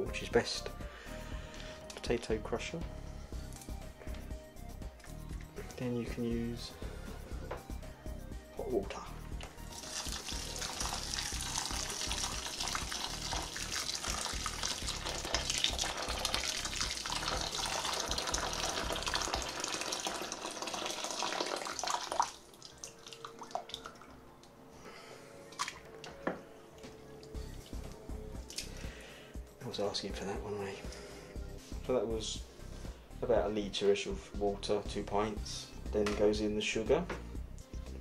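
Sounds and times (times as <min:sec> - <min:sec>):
water pouring into bucket: 0:09.7 - 0:24.0.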